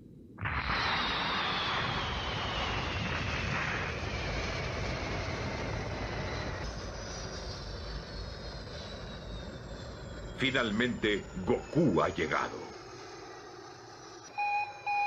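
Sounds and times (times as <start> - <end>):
cartoon spaceship engine rushing: 0.4 - 15.0
falling whine: 0.4 - 15.0.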